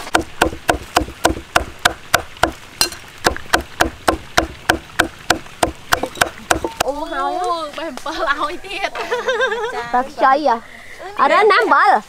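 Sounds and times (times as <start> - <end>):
cleaver chopping on wooden block: 0.0 - 6.8.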